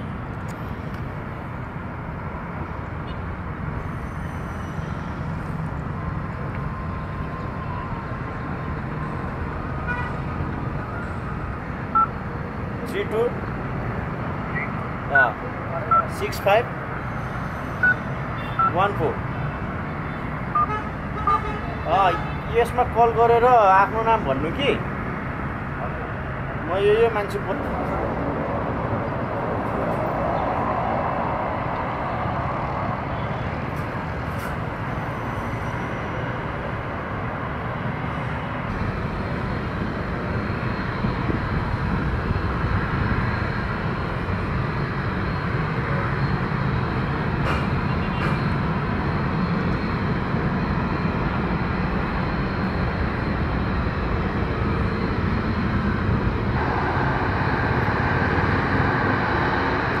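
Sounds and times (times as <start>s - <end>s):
jet engine taxiing rumble: 22.0s - 60.0s.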